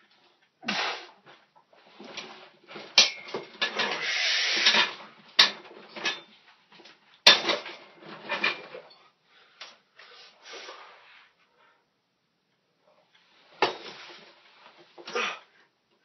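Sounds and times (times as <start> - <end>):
man grunting with effort: 15.1 - 15.5.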